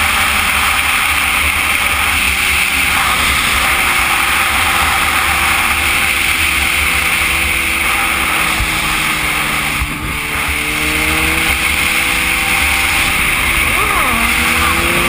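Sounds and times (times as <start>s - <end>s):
motorcycle engine: 0.0s - 15.0s
wind rush on microphone: 7.9s - 15.0s.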